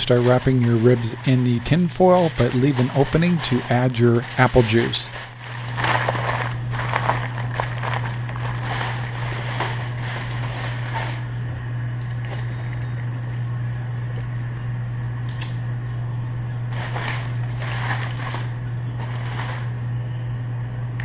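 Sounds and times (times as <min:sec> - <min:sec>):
aluminium foil crinkling: 0:00.0 - 0:11.3, 0:16.7 - 0:19.8
steady low hum: 0:00.0 - 0:21.0.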